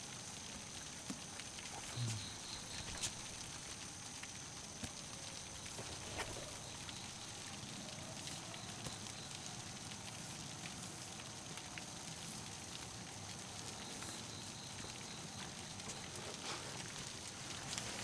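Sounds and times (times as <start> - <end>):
low background hiss: 0.0 - 18.0.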